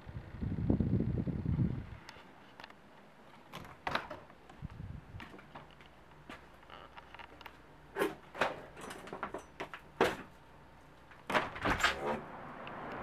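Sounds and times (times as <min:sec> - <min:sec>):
steady outdoor noise: 0:00.0 - 0:13.0
window scraping rattling slide: 0:11.4 - 0:12.4.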